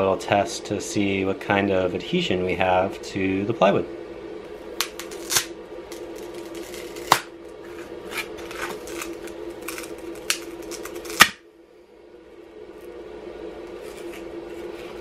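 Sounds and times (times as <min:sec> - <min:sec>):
steady background hum: 0:00.0 - 0:15.0
foam creaking and cracking: 0:04.8 - 0:11.3.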